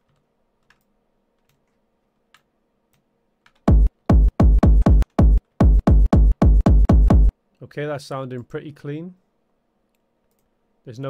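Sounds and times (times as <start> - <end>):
techno kick drum hits: 3.7 - 7.3.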